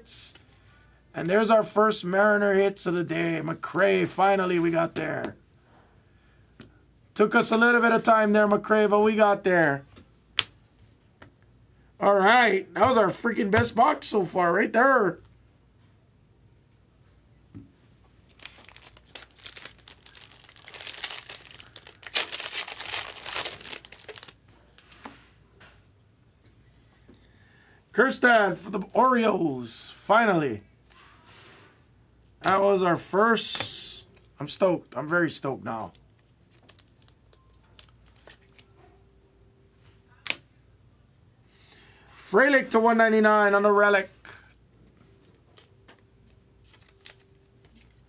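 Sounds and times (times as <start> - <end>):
plastic wrapping crinkling and tearing: 18.3 - 25.0, 36.0 - 38.8, 46.6 - 48.0.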